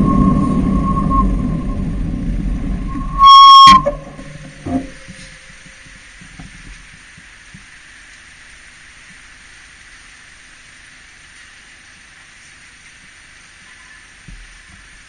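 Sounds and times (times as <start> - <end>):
soft low knocks: 0.0 - 7.0
faint steady street hiss: 4.0 - 15.0.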